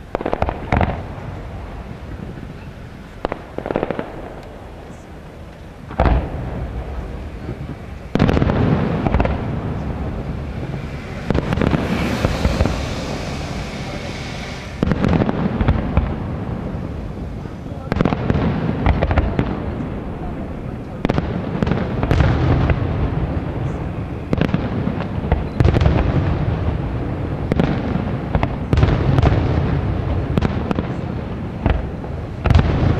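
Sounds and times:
crackling of firework stars: 0:00.0 - 0:32.9
firework shells booming: 0:00.0 - 0:32.9.

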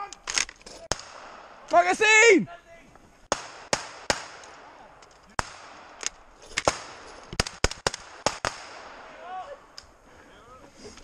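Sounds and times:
rifle shots: 0:00.3 - 0:01.7, 0:03.3 - 0:04.8, 0:05.4 - 0:09.1.

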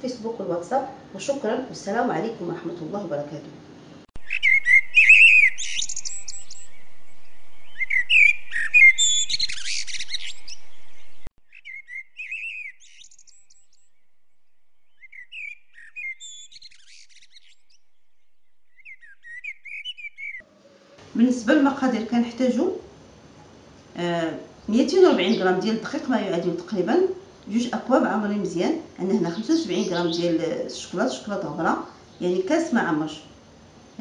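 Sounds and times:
birds twittering: 0:04.2 - 0:21.1, 0:24.4 - 0:26.4, 0:29.0 - 0:33.0.

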